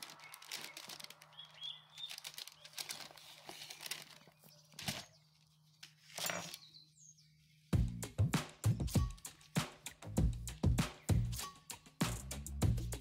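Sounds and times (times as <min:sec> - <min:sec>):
parchment paper crinkling: 0:00.0 - 0:06.7.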